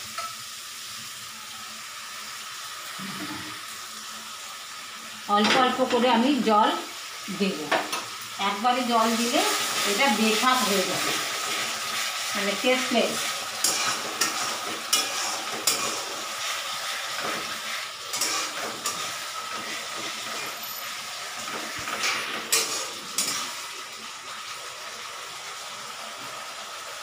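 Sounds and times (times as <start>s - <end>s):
paste sizzling in oil: 0.0s - 27.0s
metal spatula scraping pan: 12.7s - 23.6s.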